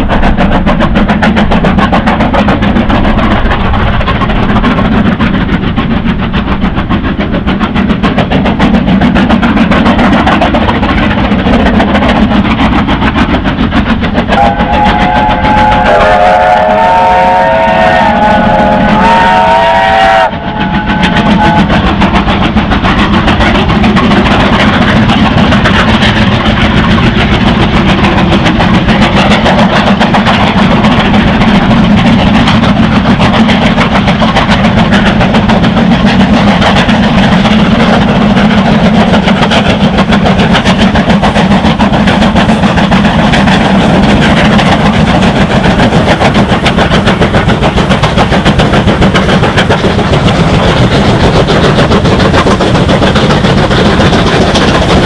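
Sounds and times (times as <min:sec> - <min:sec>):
steam locomotive exhaust beats: 0:00.0 - 0:55.0.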